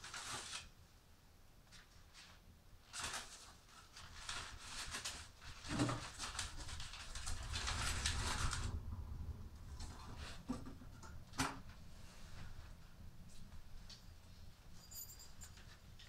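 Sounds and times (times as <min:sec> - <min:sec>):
scraping and rustling at stove: 0:01.8 - 0:13.4.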